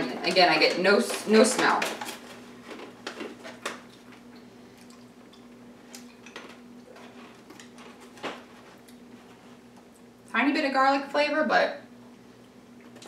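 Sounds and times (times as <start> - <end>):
steady low hum: 0.0 - 13.0
snack bag rustling: 0.2 - 9.8.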